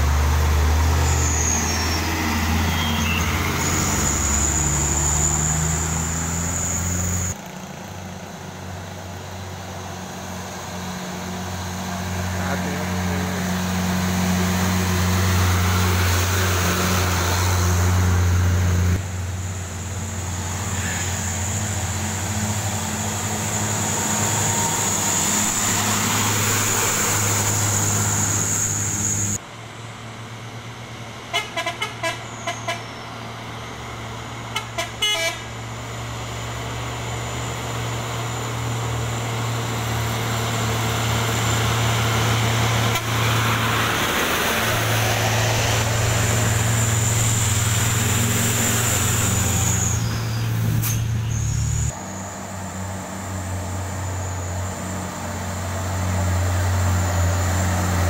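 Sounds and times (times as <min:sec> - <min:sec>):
diesel truck engines: 0:00.0 - 0:58.0
short horn toots: 0:31.3 - 0:32.9, 0:34.5 - 0:35.5.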